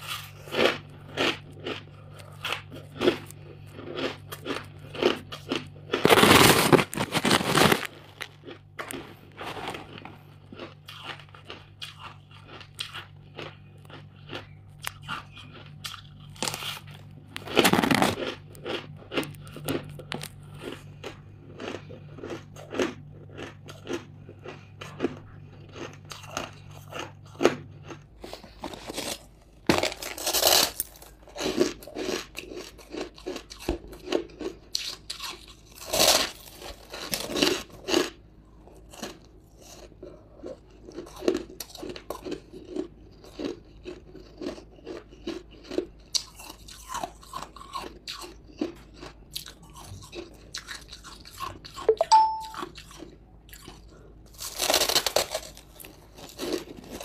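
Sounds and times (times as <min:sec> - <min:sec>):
crunchy chewing: 0:00.0 - 0:57.0
ice crunching bites: 0:03.8 - 0:15.0, 0:15.9 - 0:20.7, 0:28.4 - 0:34.2, 0:54.4 - 0:57.0.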